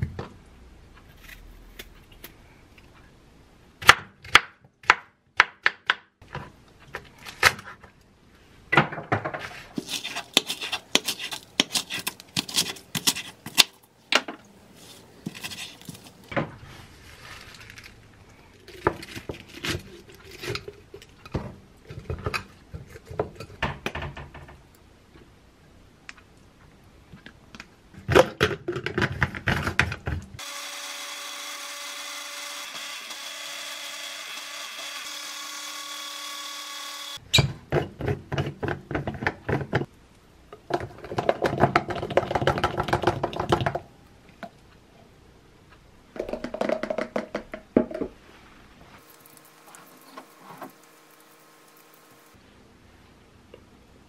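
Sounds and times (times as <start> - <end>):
cup blender chopping: 9.8 - 13.7.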